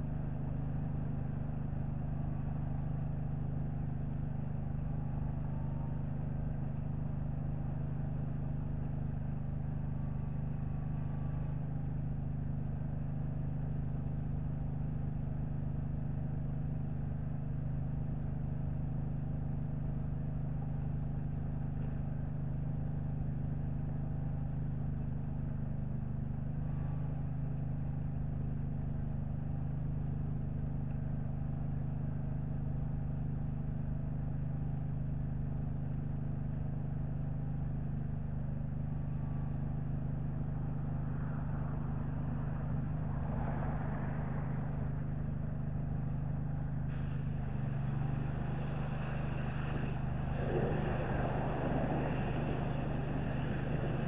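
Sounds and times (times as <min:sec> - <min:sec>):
engine running steadily: 0:00.0 - 0:54.0
pressure washer spray hissing: 0:46.9 - 0:54.0.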